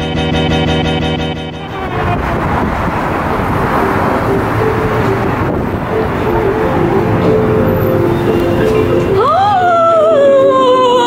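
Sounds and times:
guitar music: 0.0 - 11.0
traffic going by: 1.2 - 11.0
wind on microphone: 1.6 - 8.4.

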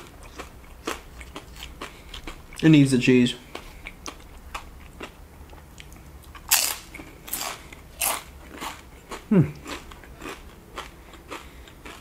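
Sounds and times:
soft chewing: 0.0 - 2.7, 3.4 - 12.0
crunching chips: 6.3 - 12.0.

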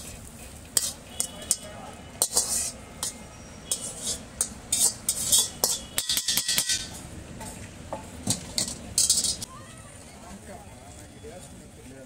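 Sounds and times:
metal spatula scraping a wok: 0.0 - 9.5.

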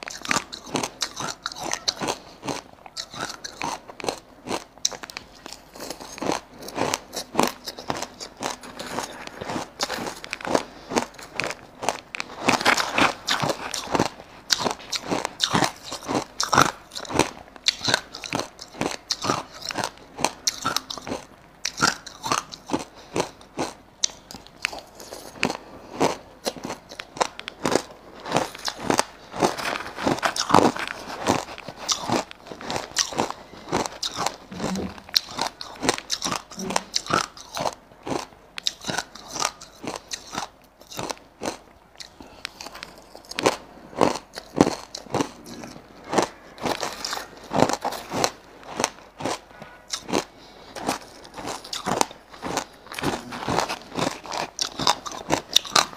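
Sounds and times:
crushed ice crunching: 26.5 - 37.3.

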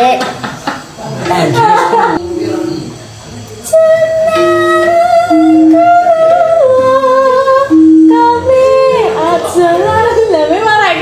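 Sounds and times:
high held melody line: 3.7 - 11.0.

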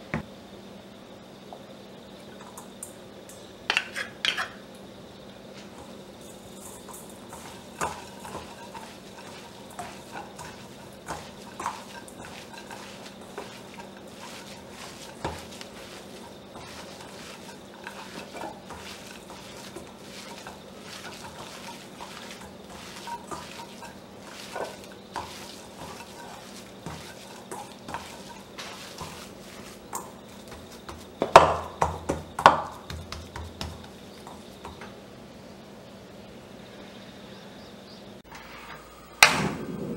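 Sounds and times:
meat squishing by hand: 7.4 - 31.7.

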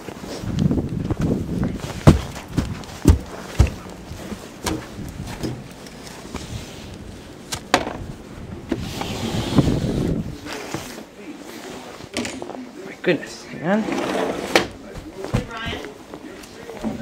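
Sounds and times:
wind rumbling on microphone: 0.2 - 10.5.

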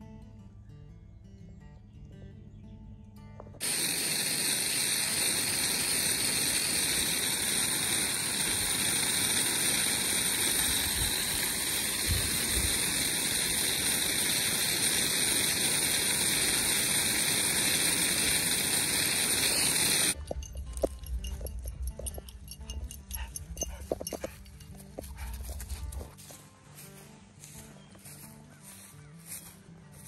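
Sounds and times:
water spray hissing: 3.6 - 26.1.

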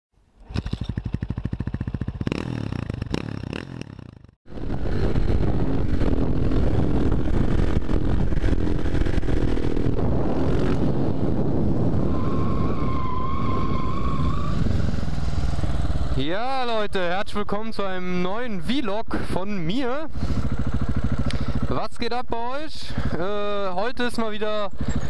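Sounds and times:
motorcycle engine pulsing: 0.4 - 11.5, 20.1 - 25.0
wind noise: 4.5 - 15.9.

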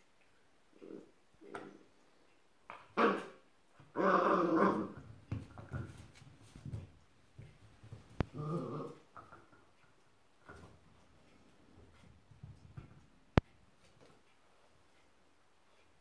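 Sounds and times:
puppy growling: 3.0 - 5.1, 8.2 - 9.5.

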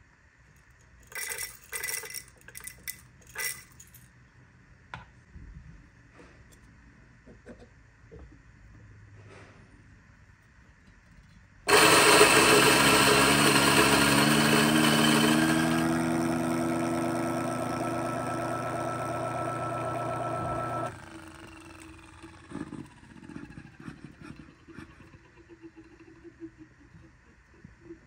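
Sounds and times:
coffee grinder grinding beans: 11.7 - 23.9.

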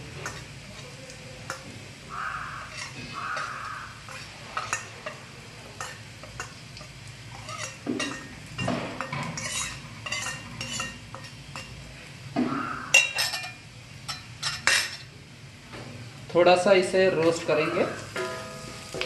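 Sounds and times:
steel spoon scraping bowl: 2.6 - 3.5, 7.4 - 8.2, 9.2 - 11.7.

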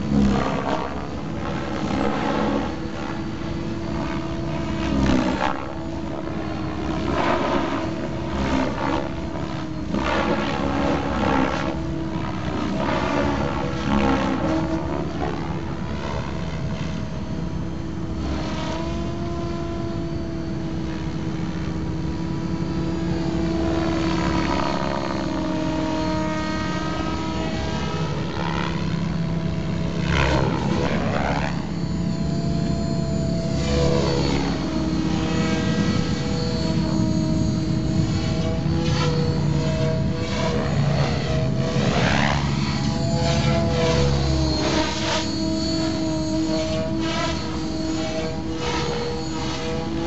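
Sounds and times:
rc helicopter motor whine: 0.0 - 50.0
rotor blade noise: 17.6 - 50.0.

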